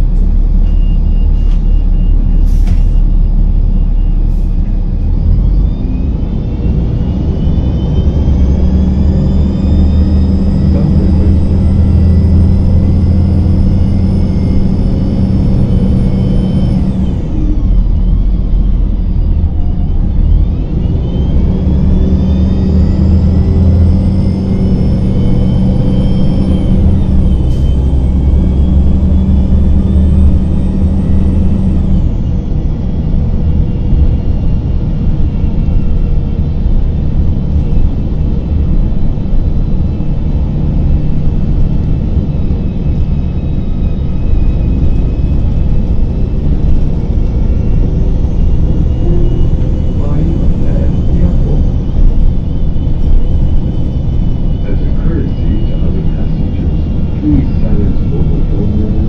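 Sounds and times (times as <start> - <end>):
bus engine drone: 0.0 - 59.0
high drivetrain whine: 0.0 - 59.0.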